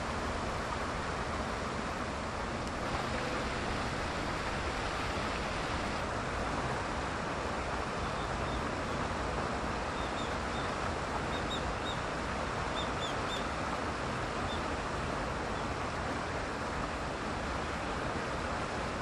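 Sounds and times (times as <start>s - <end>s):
steady rushing noise: 0.0s - 6.5s.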